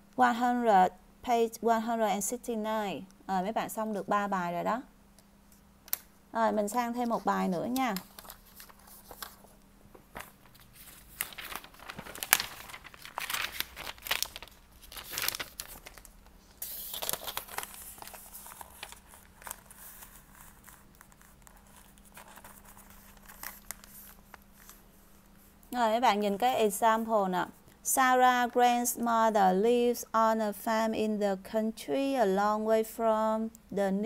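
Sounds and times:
paper pages rustling: 0:07.1 - 0:25.6
page flicking: 0:10.0 - 0:19.6.

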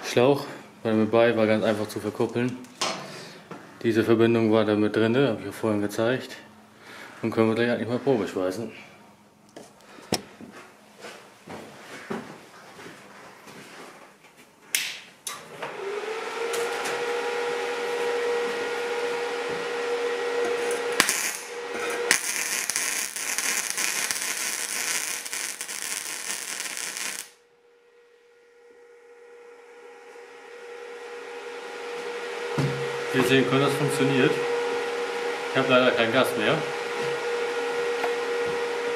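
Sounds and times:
welding machine hum: 0:20.2 - 0:27.4
welding arc crackle and spatter: 0:20.9 - 0:27.4.

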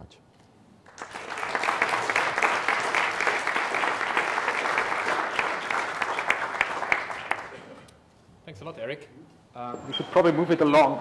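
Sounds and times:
audience applauding: 0:00.9 - 0:07.9.

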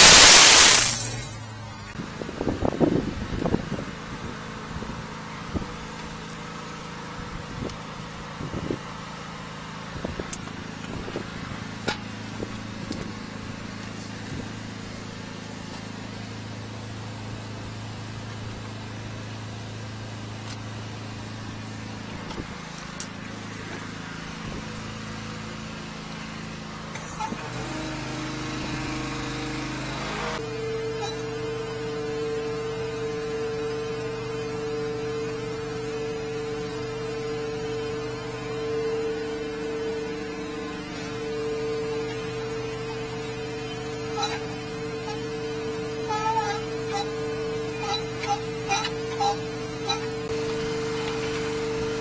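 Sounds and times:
drain-jetting machine engine: 0:00.0 - 0:02.0, 0:26.0 - 0:52.0.

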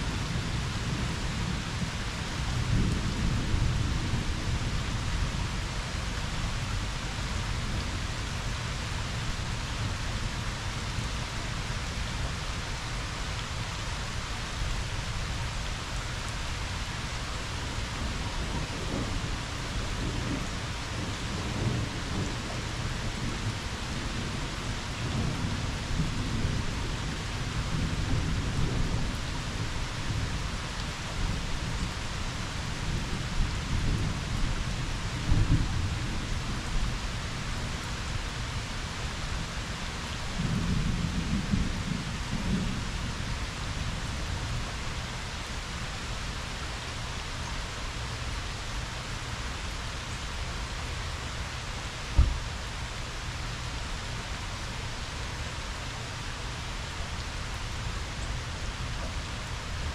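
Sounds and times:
steady rain falling: 0:00.0 - 0:59.9
low thunder rumbles: 0:17.7 - 0:30.5, 0:40.4 - 0:44.5, 0:52.1 - 0:52.5.

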